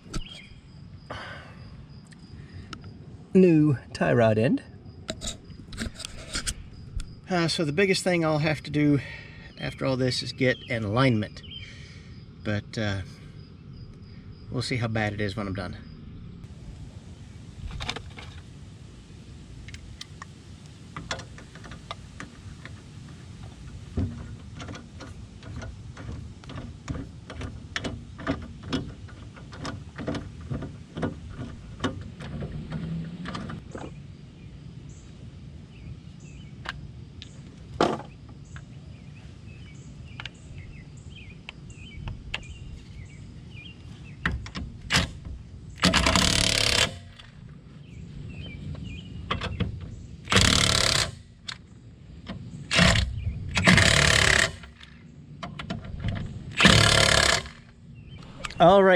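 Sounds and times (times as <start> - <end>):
loud noisy burst: 56.5 - 57.6.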